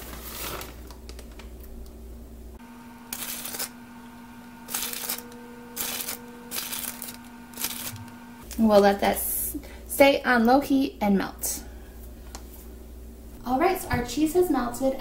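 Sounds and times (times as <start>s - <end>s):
plastic bag rustling: 0.0s - 1.5s, 4.7s - 8.6s.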